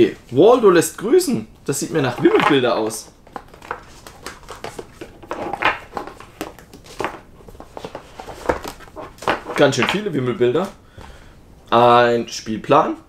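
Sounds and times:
cardboard boards on wooden table: 2.0s - 10.8s.

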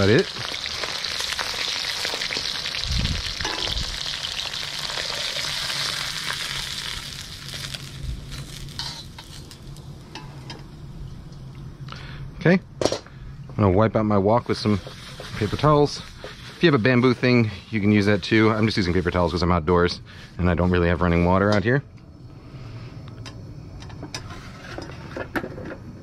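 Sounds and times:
beef sizzling in hot oil: 0.0s - 10.2s, 14.4s - 19.0s.

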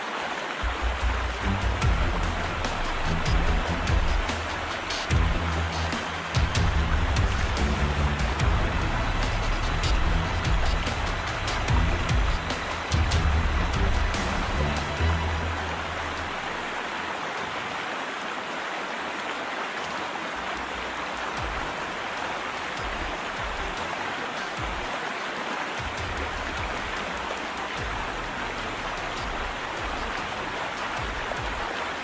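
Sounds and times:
water rushing: 0.0s - 32.0s
low rumbles: 0.6s - 16.8s.

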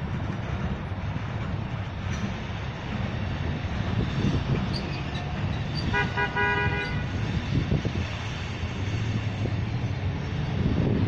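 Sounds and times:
train wheels rumbling on rail: 0.0s - 11.0s
multi-tone train horn: 5.8s - 7.3s.

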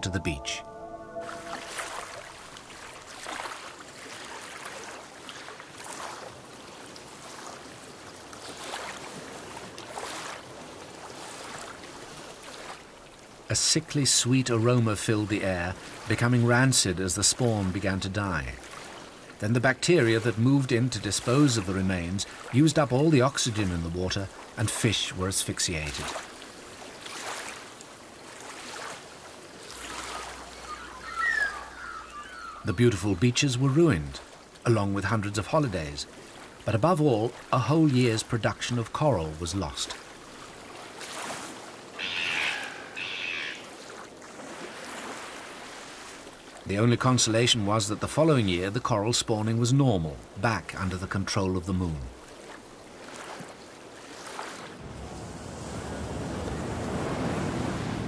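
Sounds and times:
short high gliding calls: 0.0s - 2.8s, 29.8s - 33.2s, 42.0s - 43.8s
small waves lapping: 1.0s - 58.0s
surf washing on beach: 52.1s - 58.0s.

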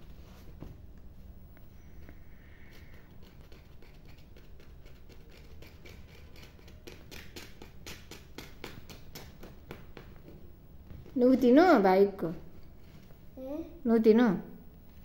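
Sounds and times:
plastic toy crinkling and scratching: 2.7s - 8.0s.

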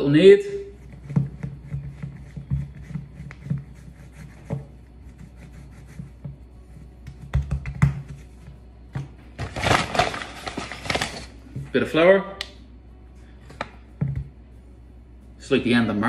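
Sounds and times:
hands kneading dough: 0.0s - 8.9s.

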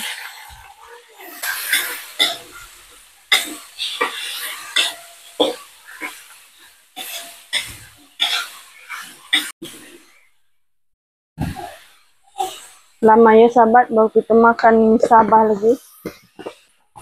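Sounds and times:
metal spatula scraping a wok: 0.0s - 9.9s
light frying sizzle: 0.0s - 10.1s.

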